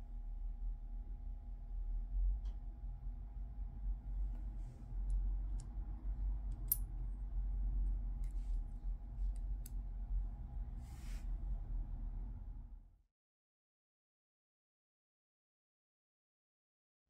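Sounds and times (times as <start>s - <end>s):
metal ring clicking: 6.6s - 6.8s.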